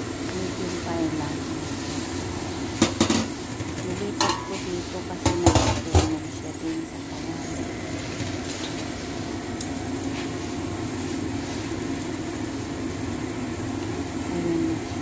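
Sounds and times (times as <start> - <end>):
sauce boiling in a pot: 0.0 - 15.0
knocks against pot: 5.2 - 6.2.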